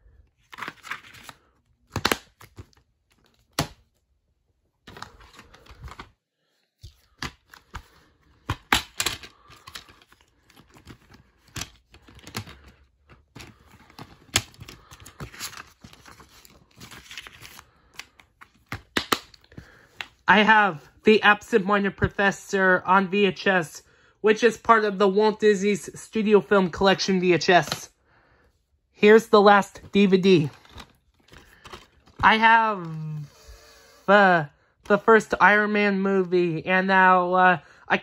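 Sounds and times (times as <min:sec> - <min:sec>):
paper inserts rustling: 0:00.4 - 0:03.9, 0:04.8 - 0:20.3, 0:29.5 - 0:33.5
plastic case clicks and snaps: 0:08.4 - 0:09.3.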